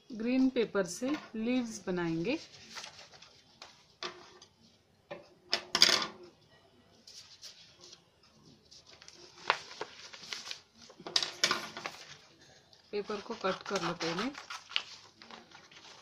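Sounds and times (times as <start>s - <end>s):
paper rustling and crackling: 2.3s - 4.4s, 7.0s - 16.0s.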